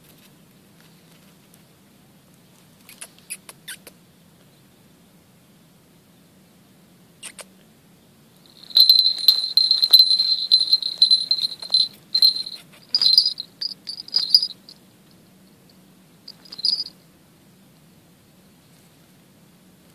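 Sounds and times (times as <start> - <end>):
small bell jingling: 8.4 - 14.8, 16.3 - 17.0.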